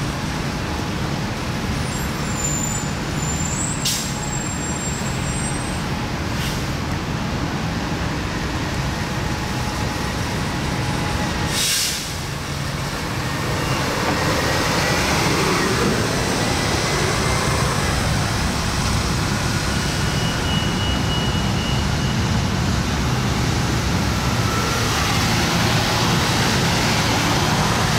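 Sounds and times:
bus engine rumbling: 0.0 - 27.9
air brake hiss: 3.6 - 4.3, 6.4 - 6.7, 11.5 - 12.3.

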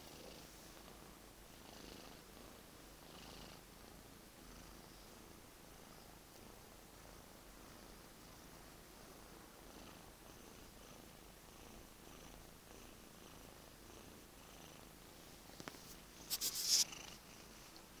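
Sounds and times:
cat purring: 0.0 - 18.0
rustling: 15.2 - 17.9.

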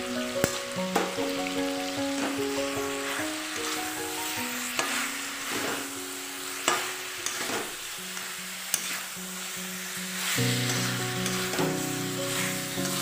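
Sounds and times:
chicken sizzling in a metal pot: 0.0 - 13.0.

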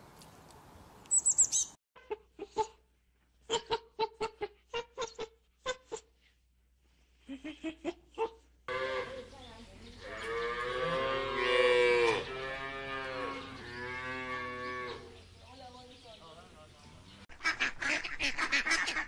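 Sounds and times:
cow mooing: 8.7 - 9.2, 10.0 - 15.1.

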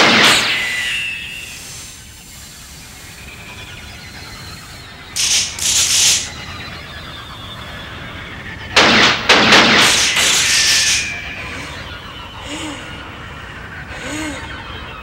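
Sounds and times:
harsh burst of noise: 0.0 - 6.8, 8.6 - 14.4
short high-pitched hissing bursts: 5.2 - 6.3.

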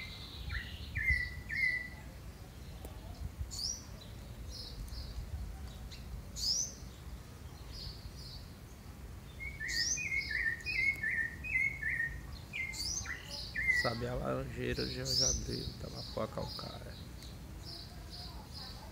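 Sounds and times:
low background noise: 0.0 - 18.9
thrush calling: 9.4 - 14.2.

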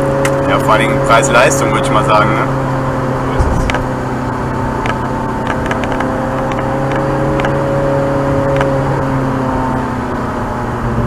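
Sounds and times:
car engine cruising: 0.0 - 11.0
tyre and road noise: 2.3 - 9.4.

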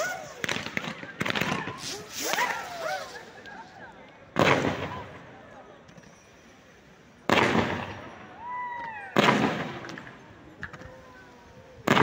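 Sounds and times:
firework bangs: 0.0 - 3.5, 4.3 - 5.2, 7.3 - 8.2, 9.1 - 10.2.

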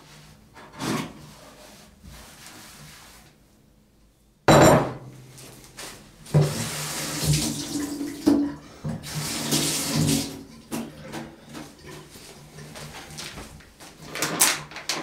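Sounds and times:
kitchen tap running into sink: 6.3 - 10.9.

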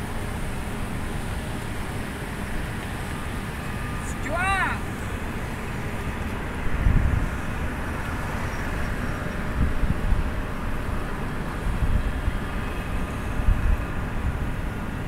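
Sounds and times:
road traffic rumble: 0.0 - 15.0
wind buffeting microphone: 5.0 - 15.0.

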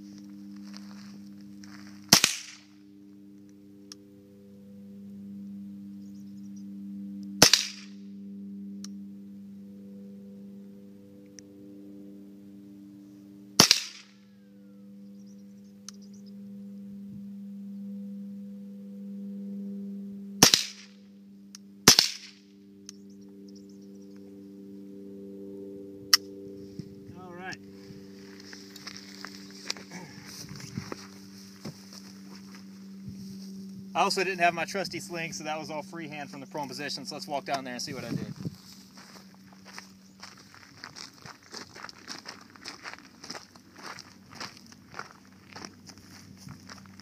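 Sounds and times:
steady low hum: 0.0 - 47.0
rifle shots: 2.1 - 2.6, 7.4 - 8.0, 13.6 - 14.1, 20.4 - 20.9, 21.8 - 22.4.

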